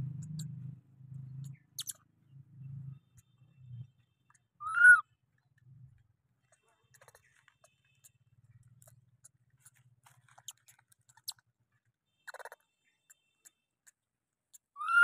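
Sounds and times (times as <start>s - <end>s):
small clicks and scratches on bark: 6.5s - 11.5s.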